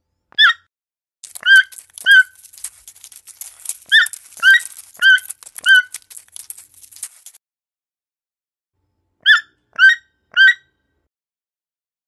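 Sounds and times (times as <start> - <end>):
toucan calling: 1.3 - 3.2, 3.8 - 6.7.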